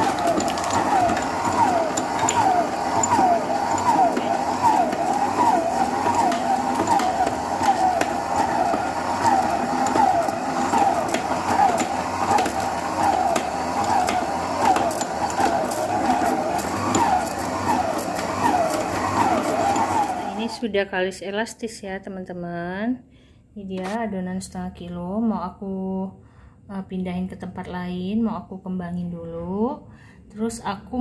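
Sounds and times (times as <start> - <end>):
stand mixer kneading dough: 0.0 - 20.6.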